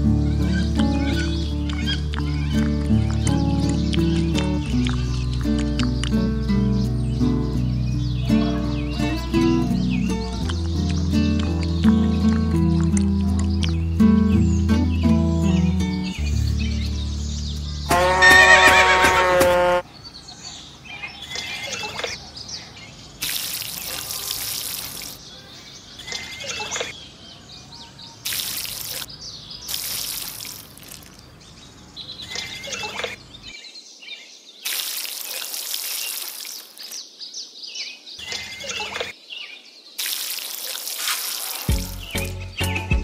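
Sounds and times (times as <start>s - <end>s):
falling bird calls: 0.0s - 43.0s
water splashing into a pond: 23.2s - 25.3s, 28.2s - 31.3s, 34.6s - 37.1s, 40.0s - 42.6s.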